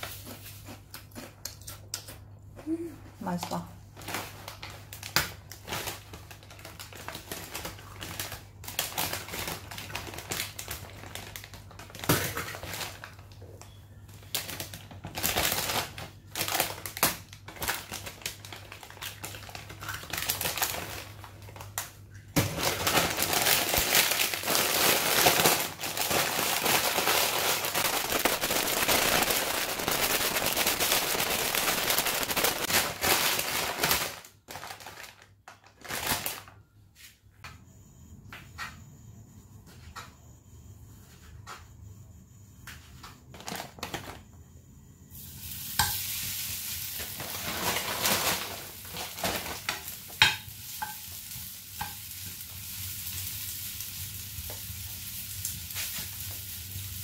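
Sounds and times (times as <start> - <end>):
foil chip bag crinkling: 3.9 - 36.6, 43.3 - 44.2, 45.8 - 57.0
chips crackling and crunching: 4.0 - 13.6, 14.2 - 36.4.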